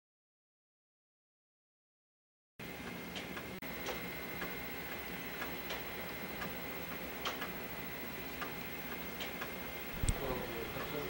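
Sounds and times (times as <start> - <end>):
mechanism ticking: 2.8 - 7.6, 8.4 - 10.7
low hum: 9.9 - 10.7.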